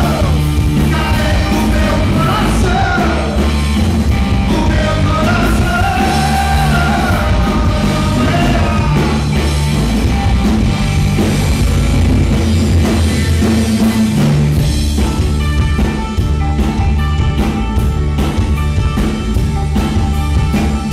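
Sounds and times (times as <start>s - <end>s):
man singing: 0.0s - 3.6s, 4.4s - 9.4s
live rock band playing: 0.0s - 20.9s.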